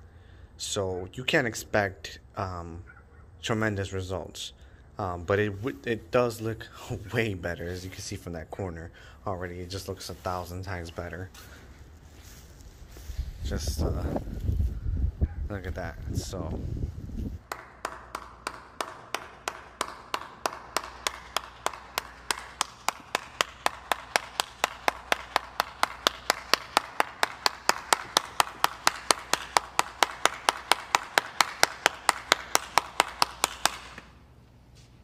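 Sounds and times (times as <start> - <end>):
person clapping: 17.4 - 34.2.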